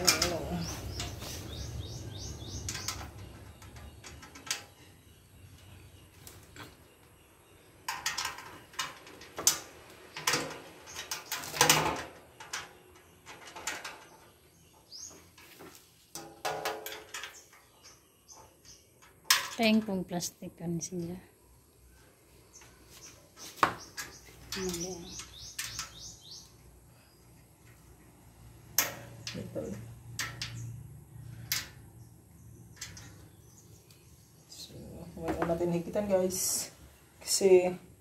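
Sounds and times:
metal frame clicking and knocking: 0.0 - 1.3, 7.8 - 14.5, 15.2 - 18.0, 30.1 - 30.8, 32.7 - 33.3
birds chirping: 0.0 - 11.6, 12.2 - 16.0, 16.9 - 38.0.

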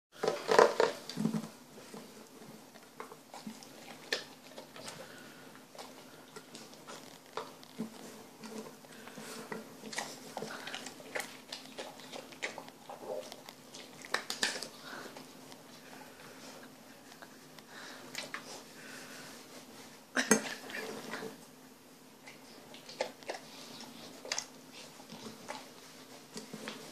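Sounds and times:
dog chewing wet food: 0.2 - 19.3, 22.2 - 26.9.

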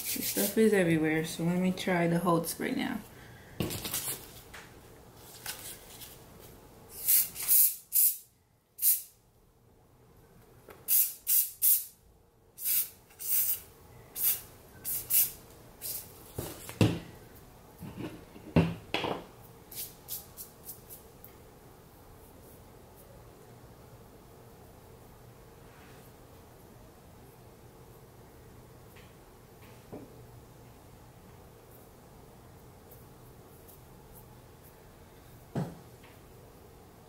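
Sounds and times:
aerosol spray hissing bursts: 0.0 - 0.6, 7.0 - 8.2, 8.8 - 9.1, 10.9 - 11.9, 12.6 - 16.0.

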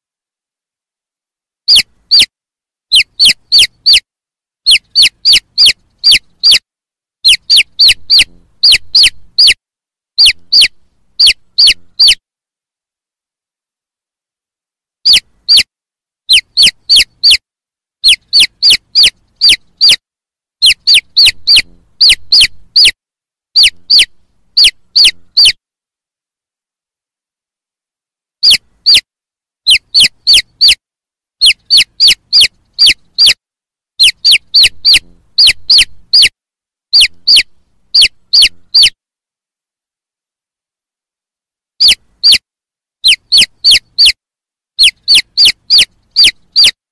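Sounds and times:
chicks peeping: 2.9 - 4.0, 4.7 - 6.6, 7.2 - 9.6, 10.2 - 12.2, 16.3 - 17.4, 18.0 - 20.0, 20.6 - 23.0, 23.6 - 25.6, 28.4 - 29.0, 29.7 - 30.8, 31.4 - 33.4, 34.0 - 36.3, 37.0 - 39.0, 41.8 - 42.4, 43.0 - 44.2, 44.8 - 46.8.

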